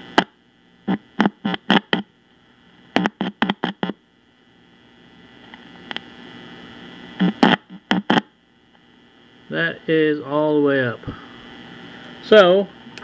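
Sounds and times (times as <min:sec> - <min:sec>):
radio speaker crackles: 0:00.0 - 0:09.5.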